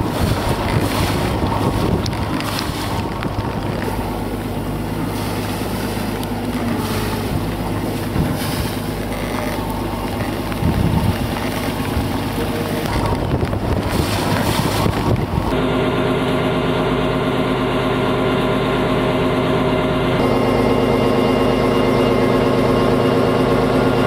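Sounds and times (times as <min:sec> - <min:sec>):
wind on microphone: 0:00.0 - 0:04.3, 0:04.9 - 0:15.6
boat engine running: 0:00.0 - 0:24.0.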